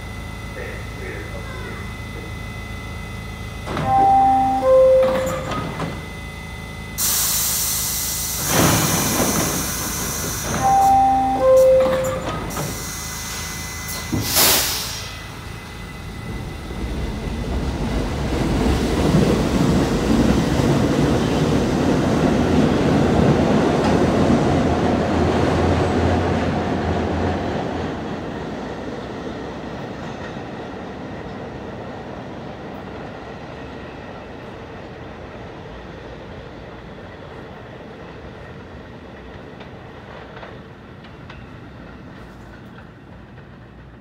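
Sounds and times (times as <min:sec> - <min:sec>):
subway train rumbling: 0:00.0 - 0:44.0
hiss of air: 0:07.0 - 0:10.5, 0:14.1 - 0:15.3.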